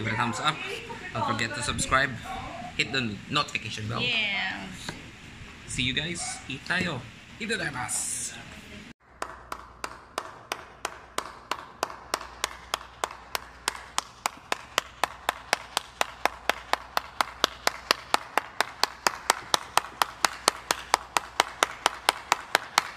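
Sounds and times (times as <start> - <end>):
person clapping hands: 9.2 - 22.9.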